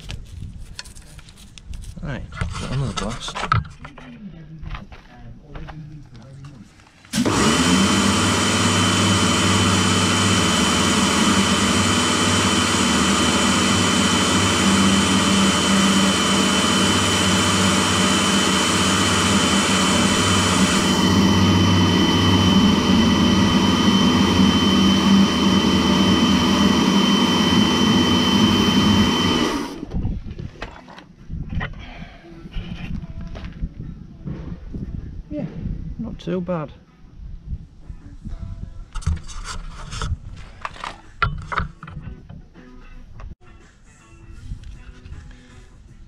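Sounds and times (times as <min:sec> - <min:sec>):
pressure washer motor hum and whine: 0:07.1 - 0:29.9.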